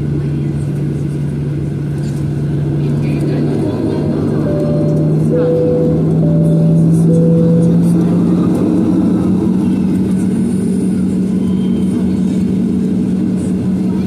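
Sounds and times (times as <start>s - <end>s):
jet engines humming: 0.0s - 14.0s
two-note cabin chime: 4.4s - 8.2s.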